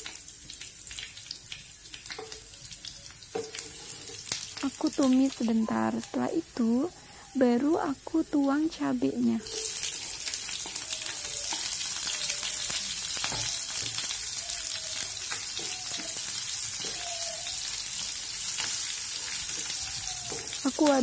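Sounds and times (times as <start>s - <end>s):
vegetables sizzling in hot oil: 0.0s - 21.0s
spatula scraping a pan: 3.3s - 4.5s, 9.4s - 11.8s.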